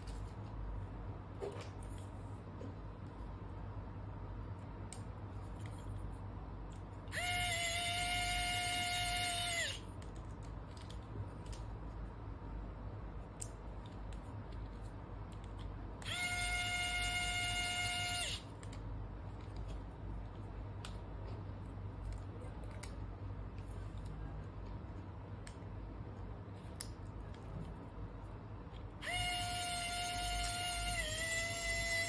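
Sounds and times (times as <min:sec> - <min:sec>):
electric screwdriver motor whining: 0:07.1 - 0:09.8, 0:16.0 - 0:18.4, 0:29.0 - 0:32.0.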